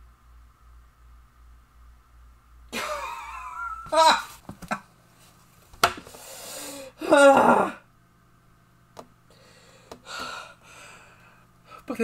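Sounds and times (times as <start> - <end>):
man sobbing: 2.8 - 4.4
man moaning: 3.9 - 4.3, 6.9 - 7.8
man gasping: 9.3 - 11.8.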